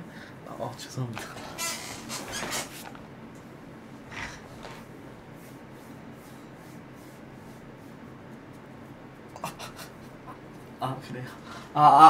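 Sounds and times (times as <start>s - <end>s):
low room hum: 0.0s - 12.0s
hands rubbing and shuffling: 1.2s - 3.1s, 4.0s - 9.4s.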